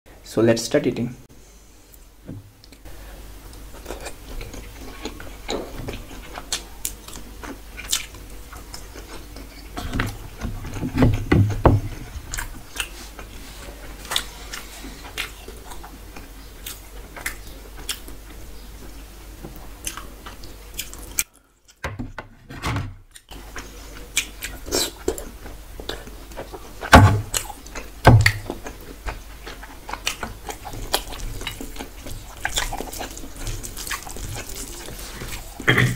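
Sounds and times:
moist squishing of rice: 28.5 - 35.7.

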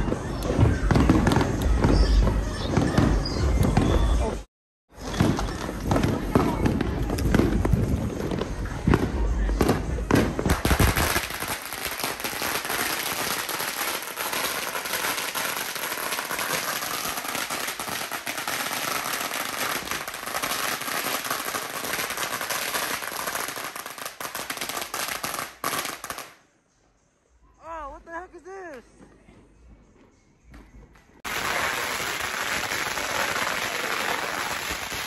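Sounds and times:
firecrackers crackling: 0.0 - 3.9, 4.9 - 26.4, 31.2 - 35.0
loud firecracker bangs: 4.9 - 26.3.

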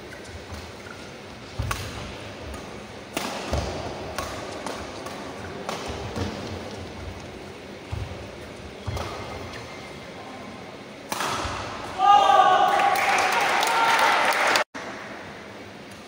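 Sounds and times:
racket striking shuttlecock: 1.6 - 6.6, 11.1 - 11.8.

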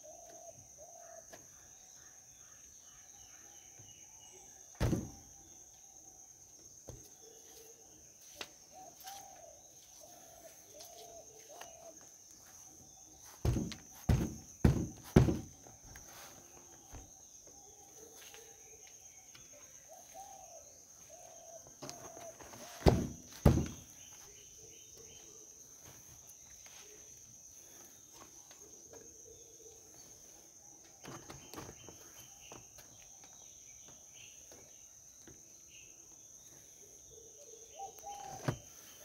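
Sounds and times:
hand thumping vehicle body: 4.8 - 5.2, 13.4 - 15.6, 22.8 - 23.9.

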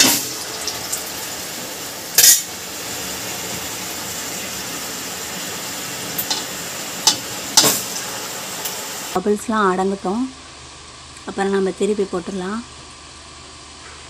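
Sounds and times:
dough sizzling in hot oil: 0.0 - 9.2.

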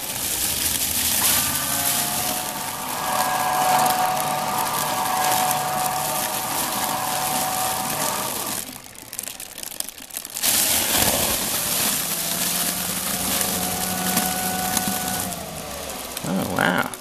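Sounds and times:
portable toilet motor whirring: 0.0 - 9.4, 10.4 - 17.0
foil bag rustling: 0.0 - 17.0.

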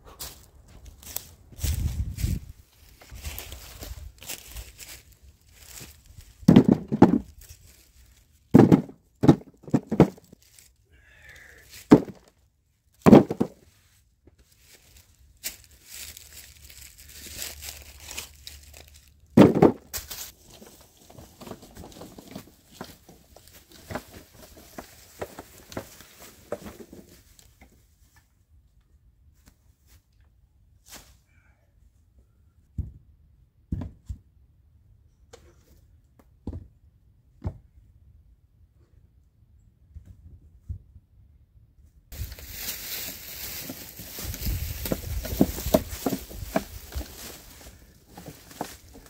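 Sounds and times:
rustling and crunching: 0.0 - 28.2, 42.1 - 49.0
heavy wooden thunks: 6.4 - 7.3, 8.6 - 10.3, 11.9 - 12.3, 13.0 - 13.6, 19.4 - 19.9.

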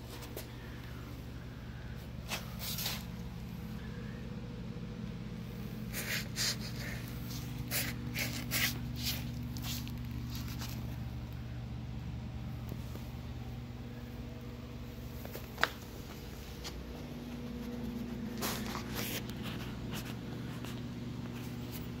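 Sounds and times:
rustles and scrapes: 0.0 - 0.9, 2.0 - 3.7, 5.5 - 11.3, 15.0 - 22.0
low mechanical hum: 0.0 - 22.0.

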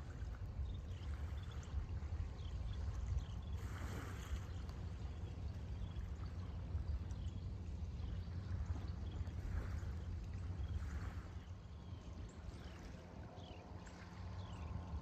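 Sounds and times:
steady low rumble: 0.0 - 15.0
small waves lapping on pebbles: 3.5 - 4.8.

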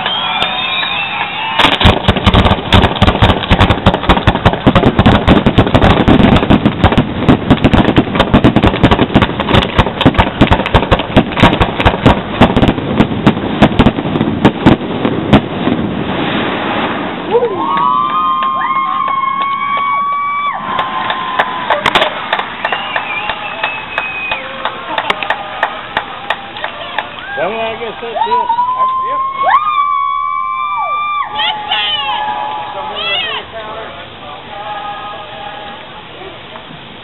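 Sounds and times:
fireworks bursting with crackle: 0.0 - 27.4.

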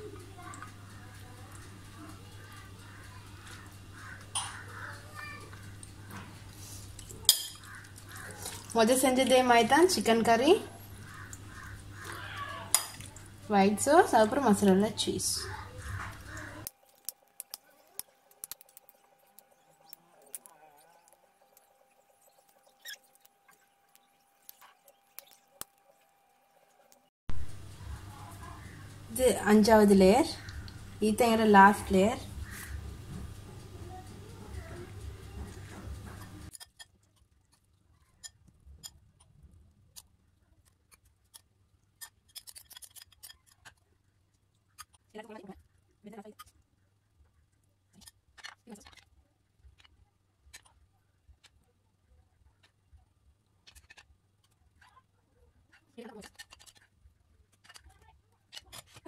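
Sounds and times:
faint steady hum: 0.0 - 48.3
metal spoon clinking on glass: 7.3 - 7.7.

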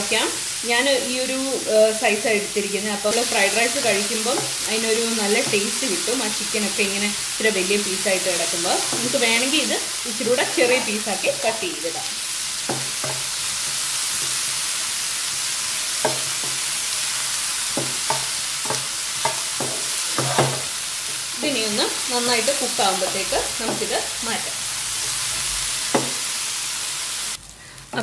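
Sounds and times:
chicken sizzling in oil: 0.0 - 28.0
spatula knocking and scraping pan: 3.8 - 6.1, 8.2 - 13.4, 16.0 - 16.7, 17.7 - 21.2, 22.4 - 24.2, 25.8 - 26.3.

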